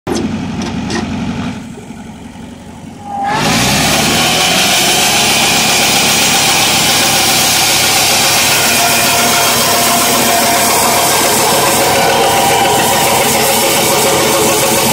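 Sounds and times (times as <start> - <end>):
sawmill engine running: 0.1 - 14.9
band saw blade cutting log: 3.0 - 14.9.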